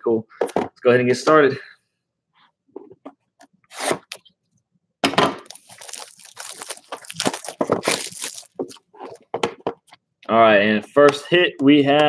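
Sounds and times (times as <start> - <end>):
shrink wrap crinkling and tearing: 5.4 - 9.2.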